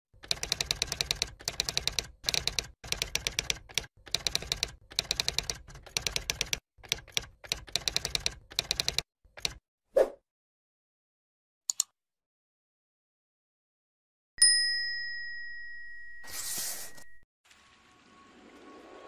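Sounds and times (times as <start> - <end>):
rapid keyboard key clicks: 0.2 - 9.6.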